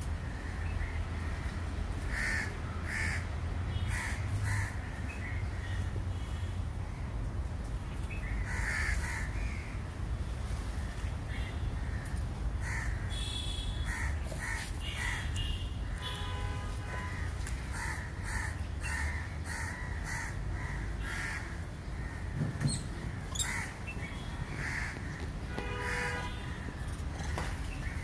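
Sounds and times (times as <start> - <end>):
crows cawing: 0.3 - 3.3, 3.9 - 5.0, 8.4 - 9.8, 11.8 - 16.1, 17.0 - 22.4, 23.1 - 23.9, 24.5 - 28.0.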